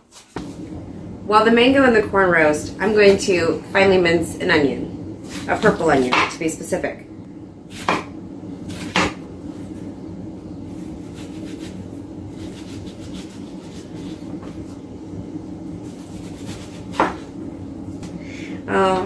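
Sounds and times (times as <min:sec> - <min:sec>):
low hum: 0:00.4 - 0:19.0
knife chopping onion: 0:07.7 - 0:08.1, 0:08.7 - 0:09.2, 0:15.9 - 0:17.3.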